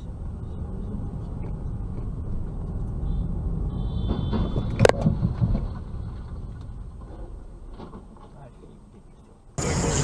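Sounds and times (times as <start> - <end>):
car road and engine rumble: 0.0 - 10.0
knocks and clatter: 4.0 - 8.4.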